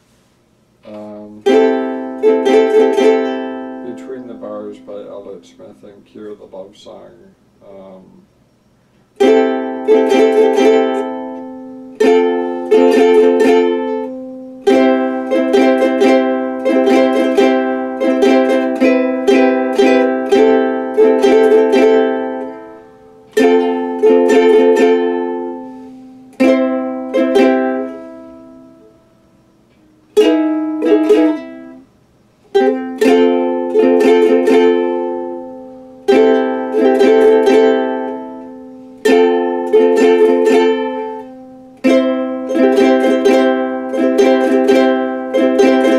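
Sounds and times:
plucked string instrument strummed: 0.8s - 7.0s, 9.2s - 45.9s.

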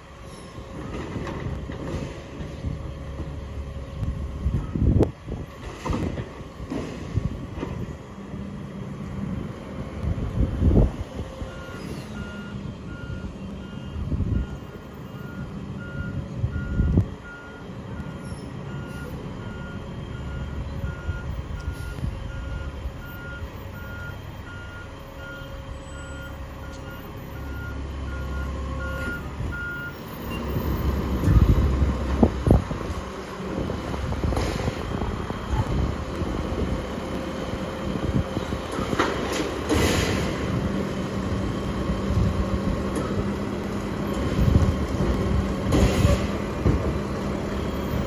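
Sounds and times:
truck engine rumble: 0.0s - 48.0s
reverse alarm beeping: 11.5s - 31.6s.

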